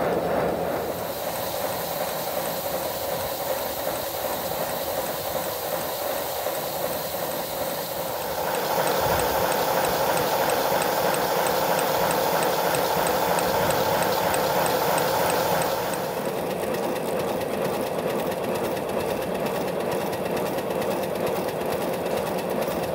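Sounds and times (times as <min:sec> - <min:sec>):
steam hiss: 0:00.0 - 0:16.6
rapid mechanical clatter: 0:00.0 - 0:22.9.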